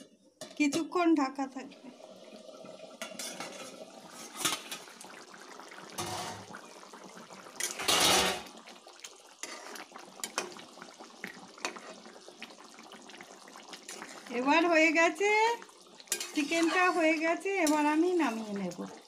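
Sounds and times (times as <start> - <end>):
curry simmering in a pan: 1.8 - 19.0
metal spatula scraping a pan: 3.1 - 4.7, 9.4 - 9.8, 16.1 - 18.6.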